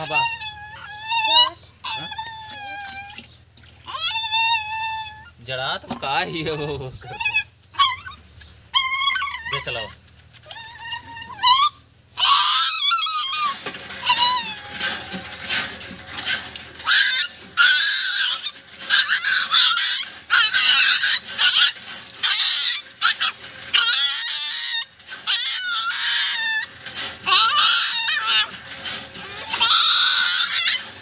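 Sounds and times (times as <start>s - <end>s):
water pouring from hand pump: 0.0s - 4.6s, 12.2s - 31.0s
puppy squealing and crying: 0.0s - 31.0s.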